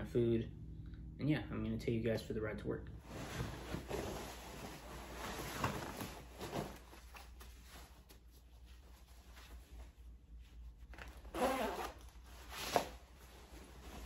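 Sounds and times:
fabric rustling: 3.0 - 14.0.

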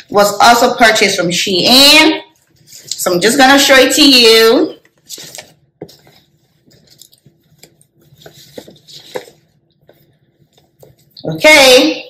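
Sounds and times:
fabric rustling: 4.8 - 11.4.

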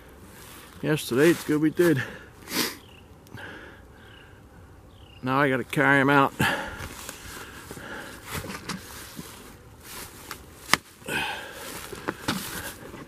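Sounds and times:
footsteps crunching through dry grass: 0.1 - 2.2, 5.5 - 13.0.

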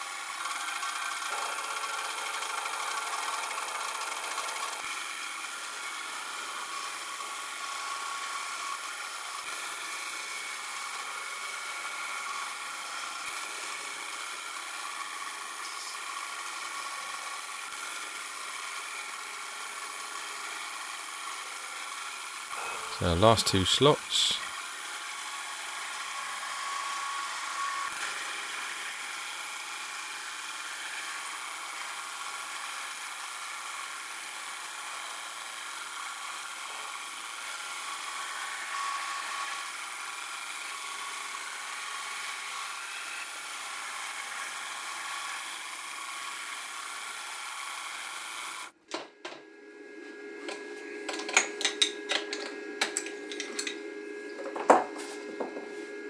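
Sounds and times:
steady machine hum: 49.4 - 56.0.

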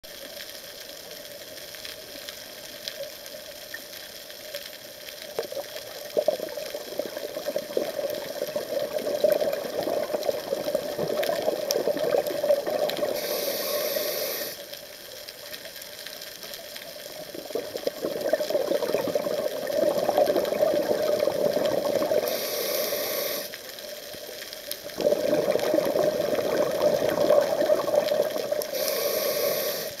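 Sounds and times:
exhaled bubbles underwater: 5.4 - 13.8, 16.9 - 23.4, 24.8 - 29.9
regulator hiss: 13.0 - 14.8, 22.0 - 24.0, 28.4 - 30.0.

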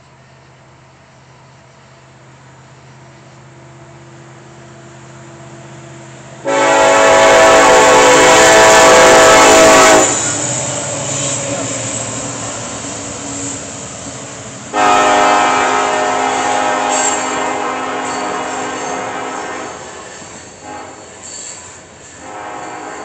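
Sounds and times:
train engine running: 0.0 - 23.0
locomotive air horn blast: 6.4 - 10.3, 14.7 - 21.2, 22.2 - 23.0.

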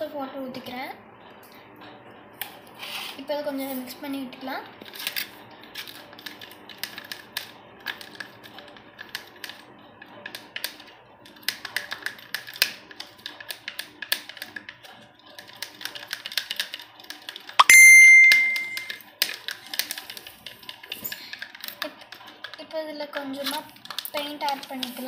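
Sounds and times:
plastic stick tapping in a cup: 23.9 - 25.0.

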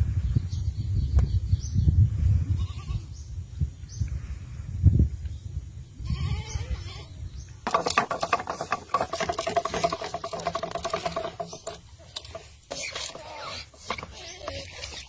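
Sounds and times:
animal bleats: 6.0 - 7.2.

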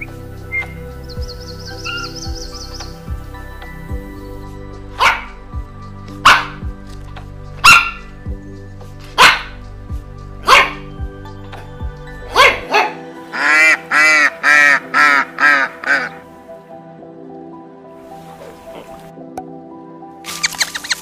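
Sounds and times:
background music: 0.0 - 21.0
dog barking: 5.0 - 5.3, 6.2 - 6.6, 7.6 - 8.1, 9.2 - 9.6, 10.4 - 10.9, 12.3 - 13.0
waterfowl nasal calls: 18.2 - 19.1.

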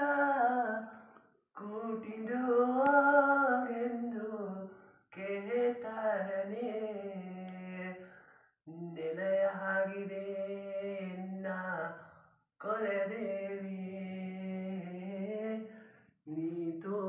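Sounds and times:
young man singing: 0.0 - 12.0, 12.6 - 17.0.

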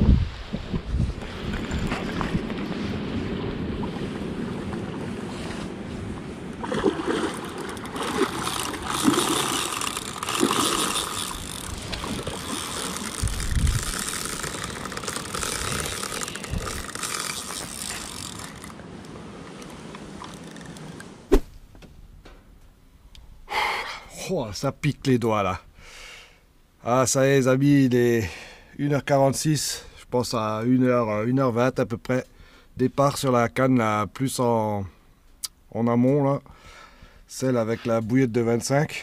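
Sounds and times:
wind gusting over microphone: 0.0 - 19.4.

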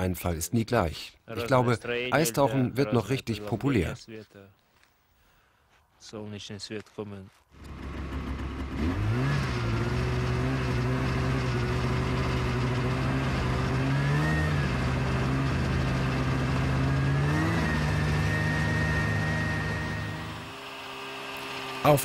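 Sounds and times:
snowmobile engine revving: 7.6 - 22.0.

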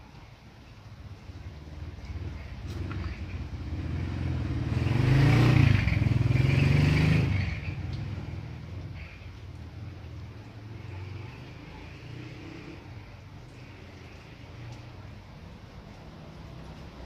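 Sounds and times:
vehicle engine passing by: 1.4 - 9.0, 9.8 - 15.1.

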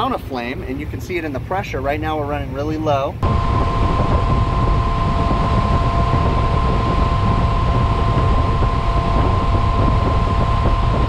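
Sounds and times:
rush of air and flame: 3.2 - 11.0
thin high tone: 3.2 - 11.0.

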